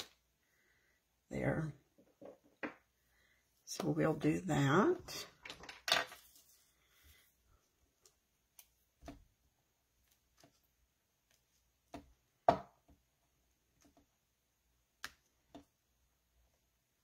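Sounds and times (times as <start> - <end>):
paper sheet rustling: 6.0 - 6.7.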